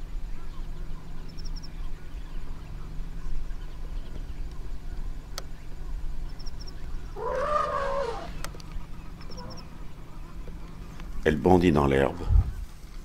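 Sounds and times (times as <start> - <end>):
animal call: 7.1 - 8.5, 9.2 - 9.8.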